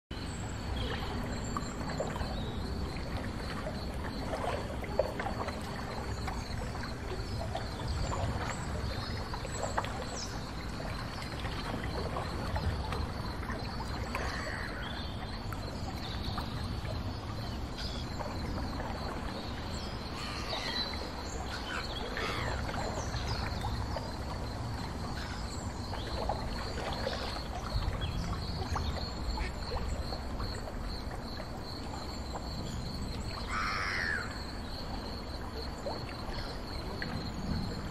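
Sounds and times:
water: 0:00.0 - 0:37.9
boat low rumble: 0:00.1 - 0:37.9.

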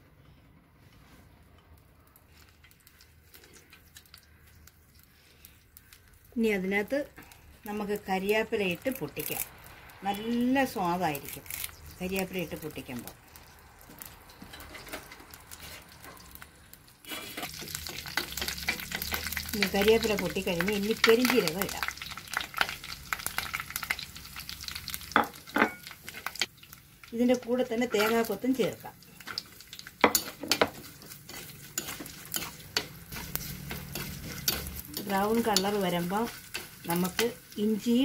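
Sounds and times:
leaves crackling in hot oil: 0:01.3 - 0:38.0
spoon knocking and scraping pot: 0:25.2 - 0:25.9, 0:30.0 - 0:35.8
metal ladle stirring: 0:29.2 - 0:37.3.

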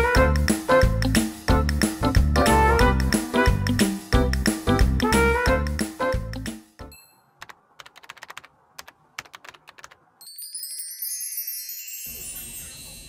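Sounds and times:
keyboard typing clicks: 0:07.4 - 0:10.0
high sparkling chime sweep: 0:10.2 - 0:13.0.

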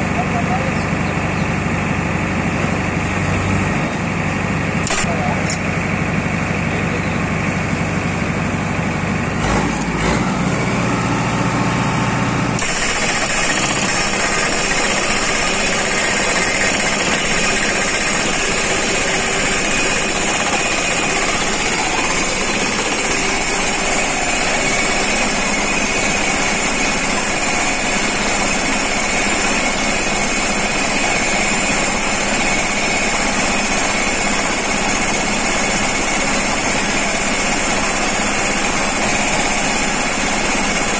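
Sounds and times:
tractor engine running: 0:00.0 - 0:40.9
post driver pounding: 0:12.6 - 0:40.9.

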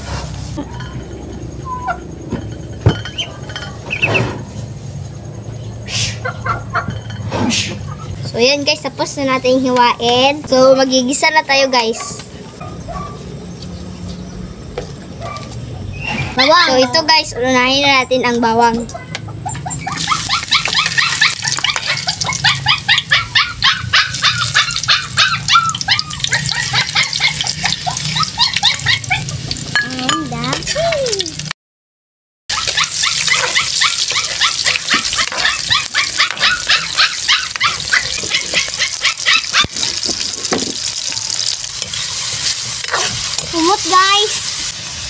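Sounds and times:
garlic sizzling in hot oil: 0:24.1 - 0:31.5, 0:32.5 - 0:45.0.

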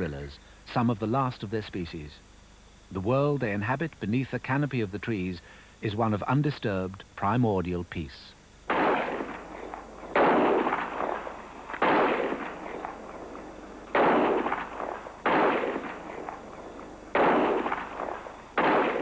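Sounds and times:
pistol shots echoing: 0:08.7 - 0:19.0.

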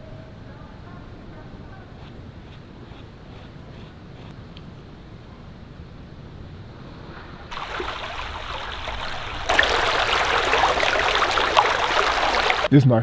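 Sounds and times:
stream running over rocks: 0:07.5 - 0:12.7.

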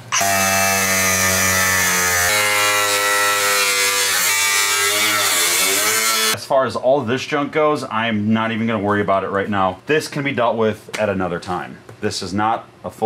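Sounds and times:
angle grinder cutting metal: 0:00.0 - 0:06.4.

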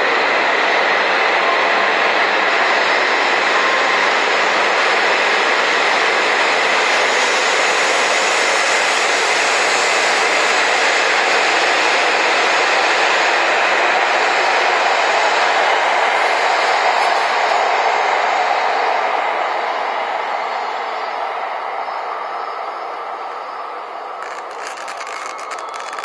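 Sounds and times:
high-speed train running past: 0:00.0 - 0:26.0.

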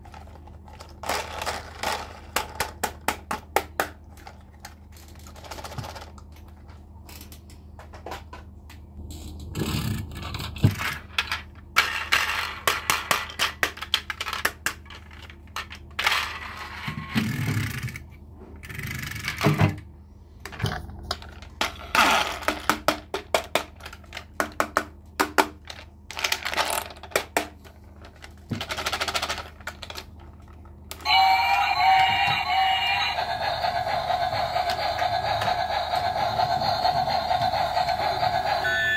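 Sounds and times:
plastic toy clicks and rattles: 0:00.0 - 0:03.4, 0:04.1 - 0:06.5, 0:09.6 - 0:16.6, 0:25.4 - 0:31.0
electronic toy tune: 0:31.0 - 0:35.2, 0:38.2 - 0:38.9.

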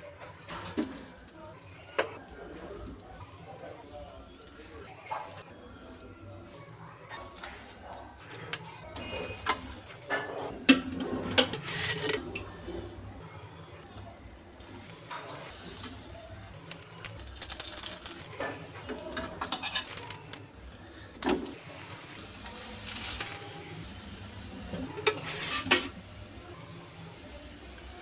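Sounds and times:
oil sizzling on a flat pan: 0:09.0 - 0:10.8, 0:14.6 - 0:28.0
metal spoon clinking and scraping pan: 0:17.3 - 0:20.2.

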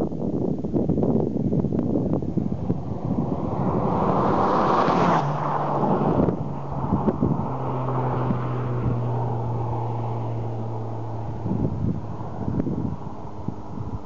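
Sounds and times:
wind on microphone: 0:00.0 - 0:14.0
car driving past at speed: 0:02.2 - 0:14.0.

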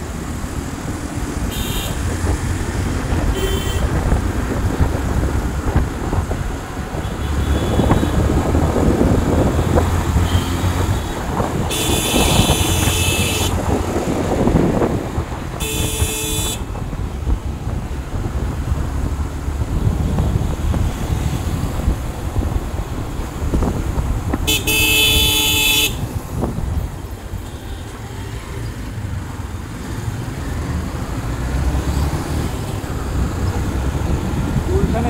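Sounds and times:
engine and tyre rumble: 0:00.0 - 0:35.0
car horn blasts: 0:01.5 - 0:02.0, 0:03.3 - 0:03.9, 0:10.2 - 0:13.6, 0:15.6 - 0:16.7, 0:24.5 - 0:26.1.

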